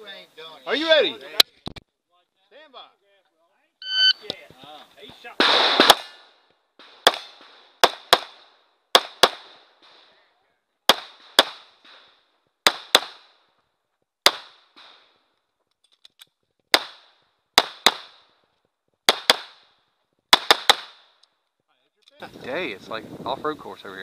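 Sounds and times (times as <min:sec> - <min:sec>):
pistol shots: 0:05.4 - 0:06.2, 0:06.8 - 0:09.6, 0:10.9 - 0:13.3, 0:14.2 - 0:15.1, 0:16.7 - 0:18.2, 0:19.1 - 0:19.6, 0:20.3 - 0:21.0.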